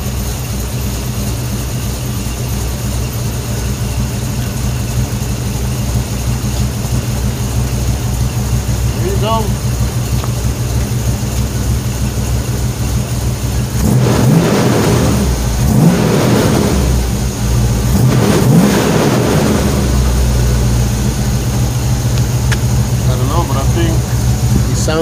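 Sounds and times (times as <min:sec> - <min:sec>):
truck engine idling and revving: 0:00.0 - 0:25.0.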